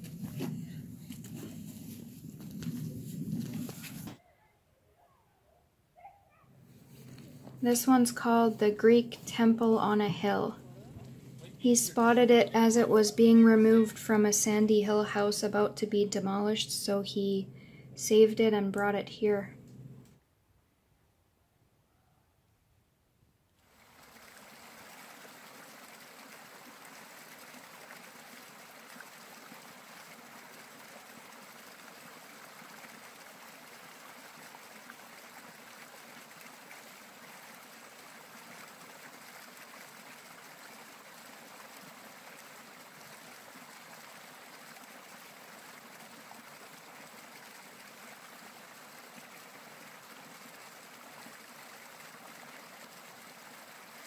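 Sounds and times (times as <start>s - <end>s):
creek trickling: 6.6s - 14.5s, 23.6s - 54.0s.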